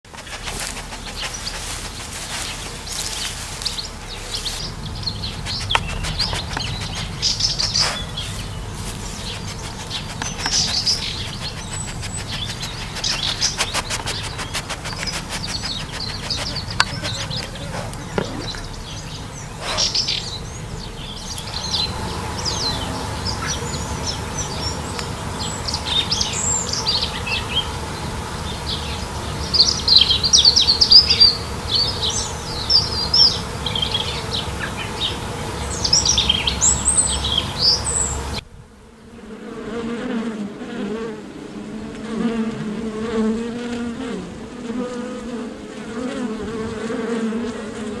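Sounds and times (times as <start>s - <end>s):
bees buzzing: 0.0s - 48.0s
insect hum: 0.0s - 48.0s
songbirds chirping and singing: 0.1s - 38.4s.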